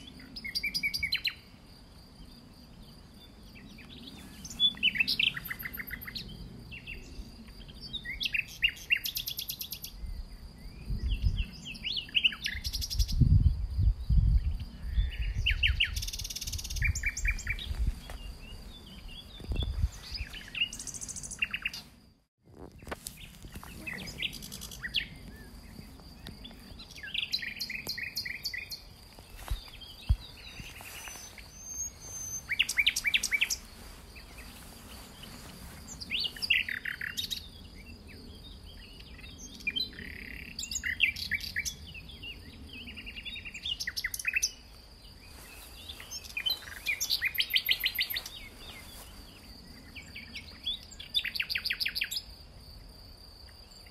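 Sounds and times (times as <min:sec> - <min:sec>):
songbirds chirping and trilling: 0:00.0 - 0:53.9.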